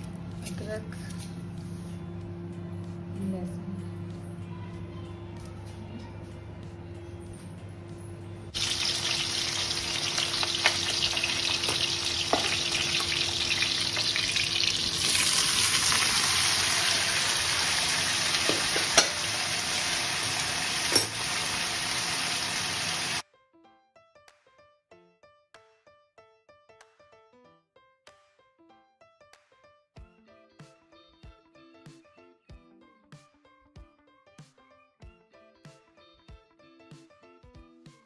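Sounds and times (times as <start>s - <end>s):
food sizzling in hot oil: 8.6s - 23.2s.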